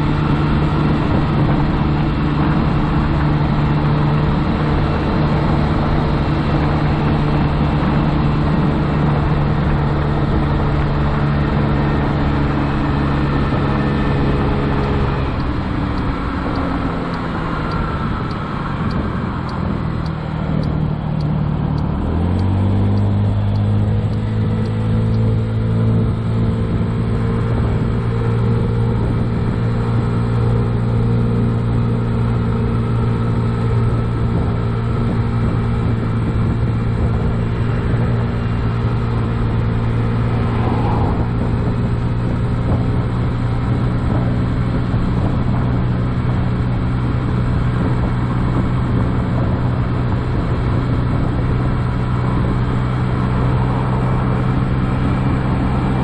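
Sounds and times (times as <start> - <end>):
scooter engine running: 32.2 - 56.0.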